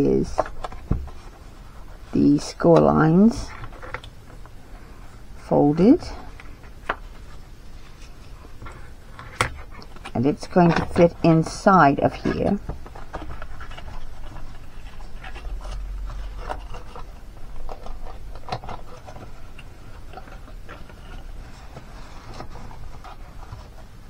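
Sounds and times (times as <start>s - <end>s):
low steady hum: 0.0s - 24.0s
cardstock scraping and rustling: 5.9s - 24.0s.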